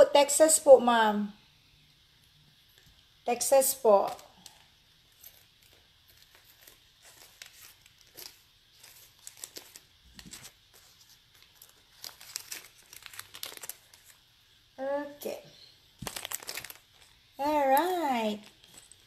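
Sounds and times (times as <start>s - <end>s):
bracelet crinkling and clicking: 4.0s - 14.3s, 16.0s - 19.0s.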